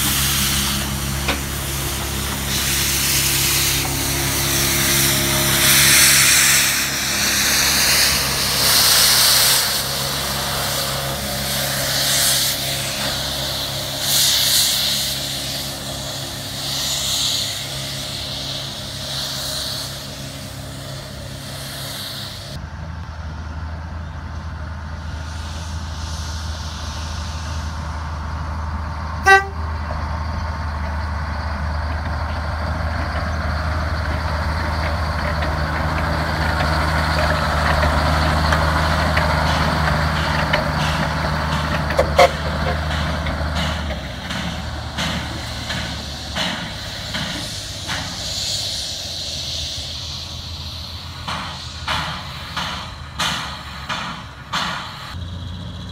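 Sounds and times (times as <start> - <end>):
steam hiss surges: 0.0 - 22.6, 24.7 - 29.6, 30.2 - 55.2
diesel locomotive drone: 0.0 - 55.9
locomotive horn toot: 29.2 - 29.9, 41.9 - 42.9.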